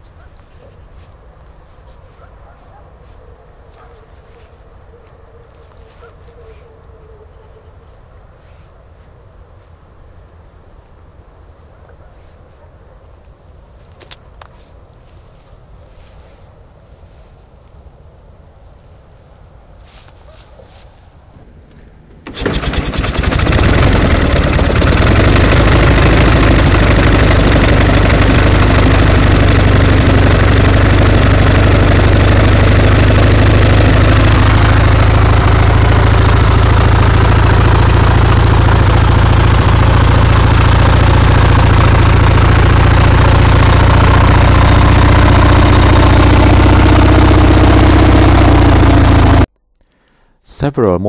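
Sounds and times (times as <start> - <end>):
motorcycle engine starting and running: 21.9 - 49.5.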